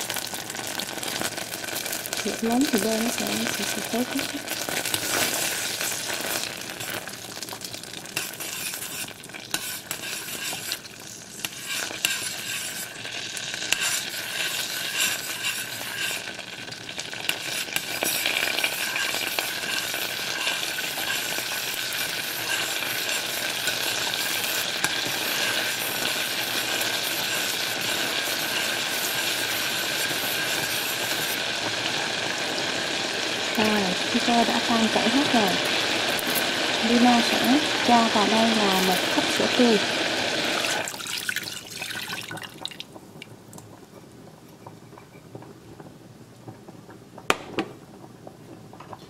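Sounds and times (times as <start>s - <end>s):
butter sizzling in a pot: 0.0s - 43.7s
metal spoon scraping a pot: 4.8s - 7.0s, 8.1s - 16.4s, 17.2s - 31.4s.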